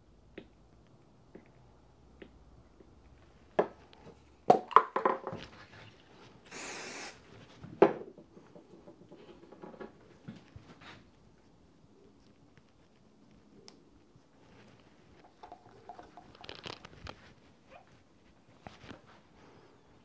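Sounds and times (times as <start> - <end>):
brief hiss: 6.5 - 7.2.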